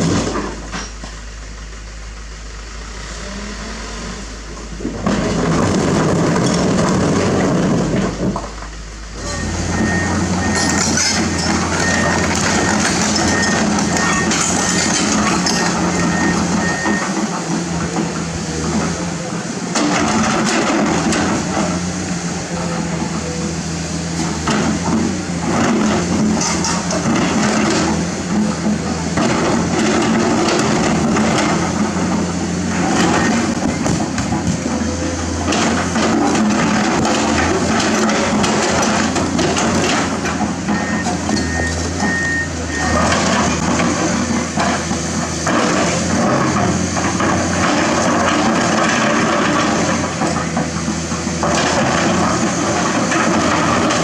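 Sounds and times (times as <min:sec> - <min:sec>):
rocks rumbling from dump truck: 0:00.0 - 0:02.3, 0:02.9 - 0:54.0
excavator diesel engine running: 0:00.0 - 0:54.0
high alarm beep: 0:09.2 - 0:14.9.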